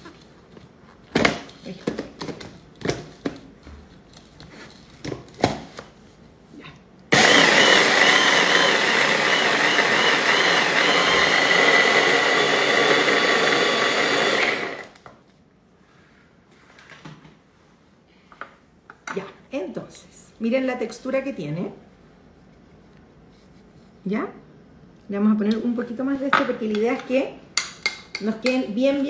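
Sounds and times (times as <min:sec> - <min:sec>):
hand blender whining: 0:07.1 - 0:15.0.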